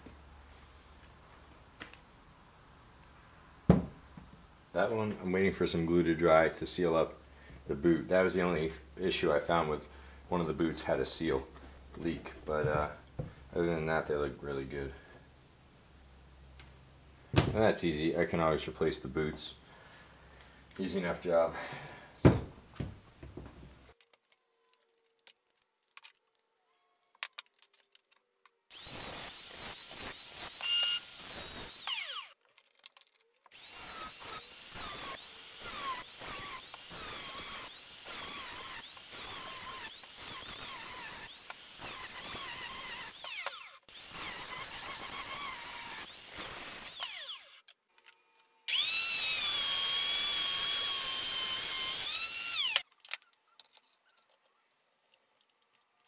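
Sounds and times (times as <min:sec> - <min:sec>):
angle grinder cutting steel: 0:28.7 - 0:32.4, 0:33.5 - 0:47.7, 0:48.7 - 0:52.8.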